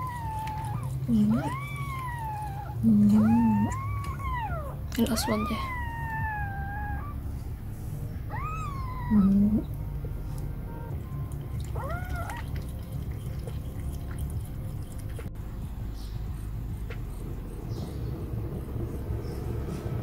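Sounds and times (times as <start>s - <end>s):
kittens mewing: 0.0s - 7.6s, 8.2s - 9.8s, 11.5s - 13.6s.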